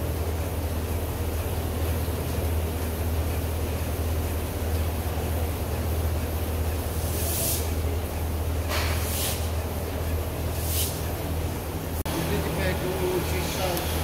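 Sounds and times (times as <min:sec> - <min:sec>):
low machine hum: 0:00.0 - 0:14.0
hissing spray bursts: 0:06.9 - 0:07.8, 0:08.7 - 0:09.6, 0:10.6 - 0:11.1.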